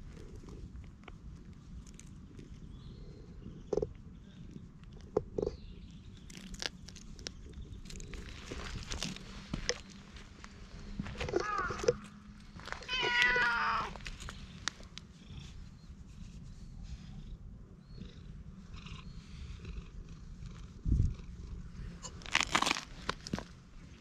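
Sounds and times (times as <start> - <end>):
cat purring: 0.0 - 9.5, 13.9 - 22.2
cat meowing: 11.3 - 12.0, 12.8 - 14.0.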